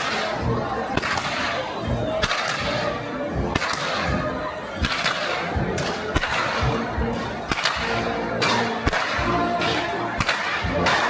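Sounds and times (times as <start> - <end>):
marching band playing: 0.0 - 11.0
whips cracking: 1.0 - 1.6, 2.2 - 2.8, 3.6 - 4.1, 4.8 - 6.7, 7.5 - 11.0.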